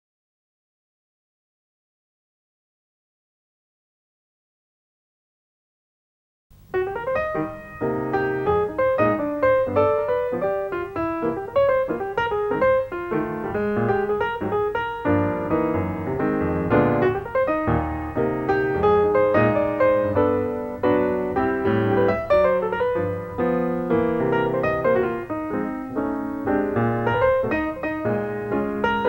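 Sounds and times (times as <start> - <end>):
piano music: 6.6 - 29.0.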